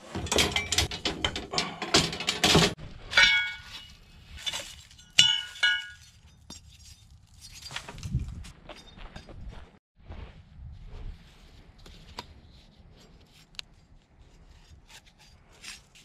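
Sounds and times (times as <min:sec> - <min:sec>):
metal clattering and rattling: 0:00.0 - 0:09.3.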